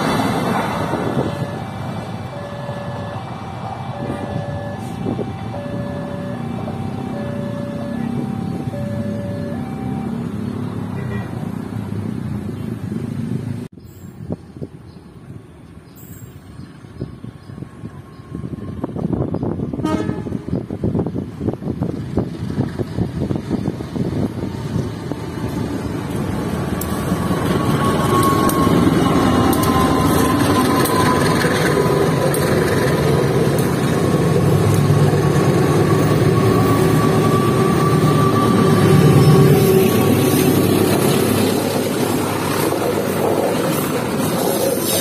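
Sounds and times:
train wheels rolling on rails: 0.0 - 9.8, 20.5 - 45.0
locomotive engines running: 0.0 - 12.0, 21.2 - 45.0.

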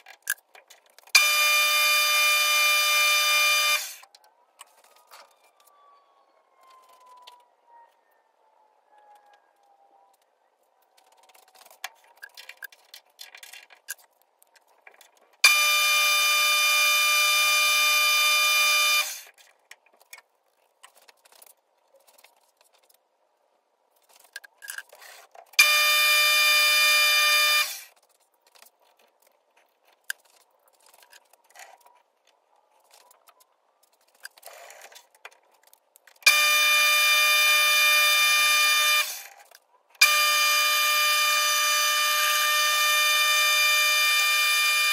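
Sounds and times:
faint clicks and scraping: 0.0 - 1.2, 4.0 - 5.9, 6.6 - 8.3, 8.9 - 15.5, 19.2 - 25.7, 27.8 - 36.3, 39.1 - 40.0.

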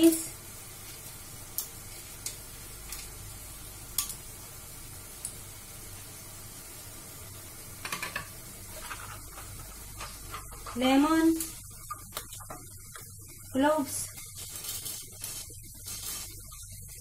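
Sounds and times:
masala sizzling in a frying pan: 0.0 - 17.0
spatula clicking and scraping pan: 7.8 - 11.0.

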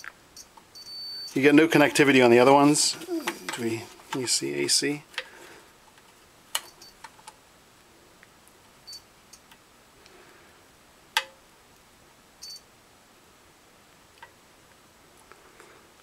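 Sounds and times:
multimeter high beeps: 0.4 - 1.4.

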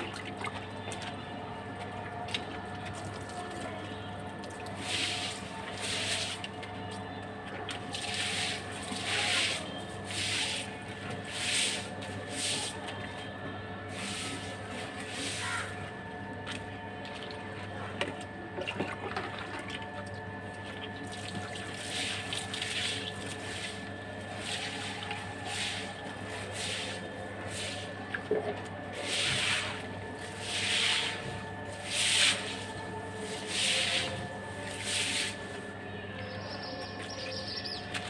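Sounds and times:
steady electrical hum: 0.7 - 38.0
broom swishing water on floor: 4.7 - 6.6, 7.8 - 12.9, 13.9 - 15.8, 21.2 - 27.9, 28.9 - 35.7.

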